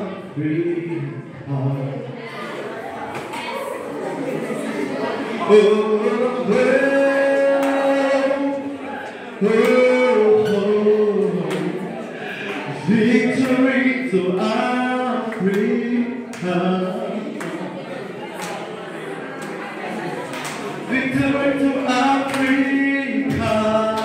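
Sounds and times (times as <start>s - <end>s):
man singing unaccompanied: 5.4s - 11.8s, 12.7s - 17.2s, 20.8s - 24.0s.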